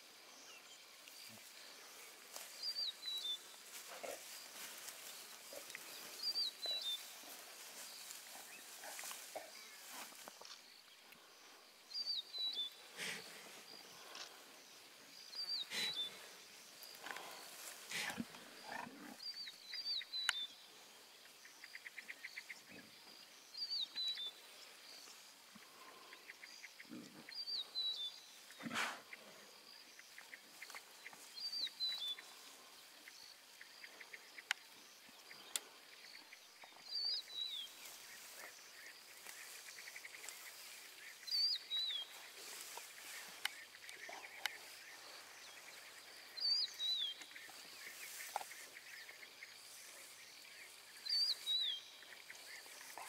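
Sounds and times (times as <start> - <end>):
lion cubs growling: 15.5 - 19.6, 41.7 - 46.4.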